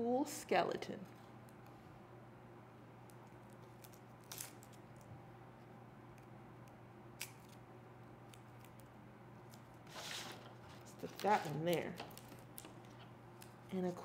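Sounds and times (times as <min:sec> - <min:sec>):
steady low hum: 0:00.0 - 0:14.0
sticker peeling rustle: 0:08.3 - 0:14.0.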